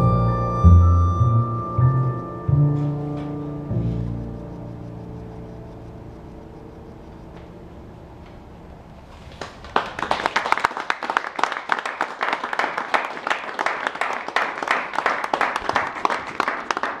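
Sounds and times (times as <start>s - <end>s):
audience applauding: 9.3s - 17.0s.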